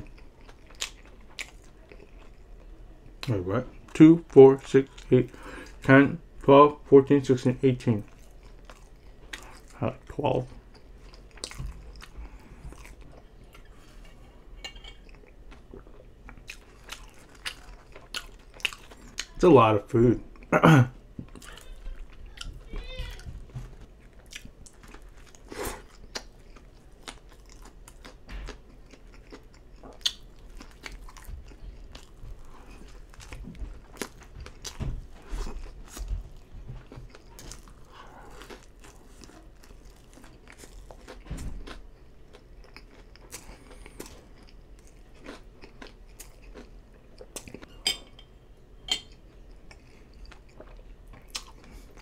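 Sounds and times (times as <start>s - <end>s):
chewing and biting food: 0.0s - 2.5s, 8.0s - 9.8s, 10.6s - 14.1s, 15.0s - 19.4s, 21.3s - 47.7s, 49.5s - 52.0s.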